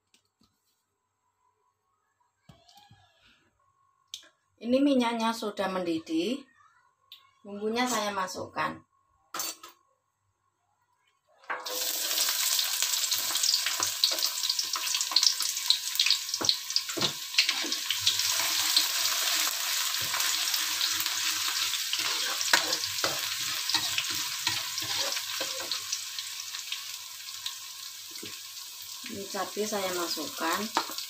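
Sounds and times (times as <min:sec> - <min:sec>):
shallots and garlic sizzling in oil: 0:11.6 - 0:31.0
spatula scraping and knocking wok: 0:13.0 - 0:26.0, 0:30.4 - 0:31.0.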